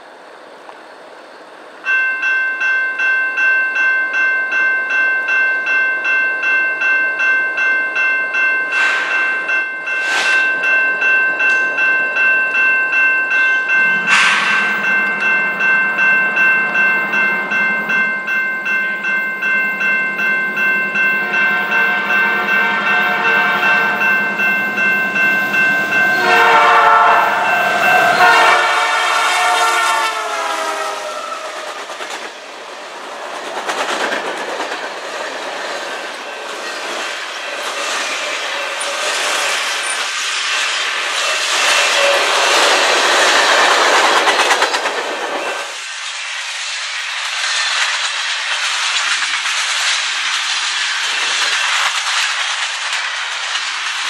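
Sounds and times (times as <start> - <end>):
train wheels rumbling and clattering: 7.2 - 54.0
train horn: 21.2 - 24.4, 26.0 - 31.8, 41.8 - 42.5.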